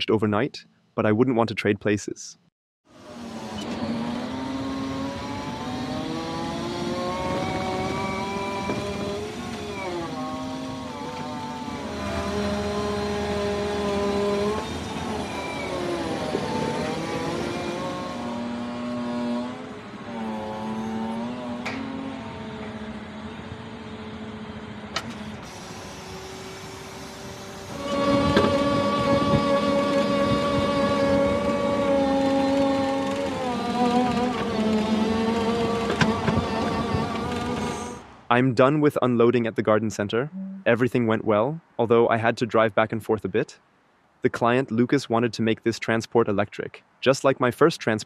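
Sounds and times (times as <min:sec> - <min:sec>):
forklift motor: 0:02.9 - 0:38.1.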